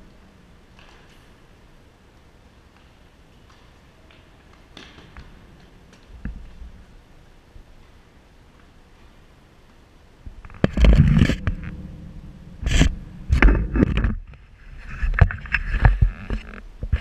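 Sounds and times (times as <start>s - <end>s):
low handling rumbles: 10.2s - 15.4s
camera scraping on metal railing: 10.4s - 17.0s.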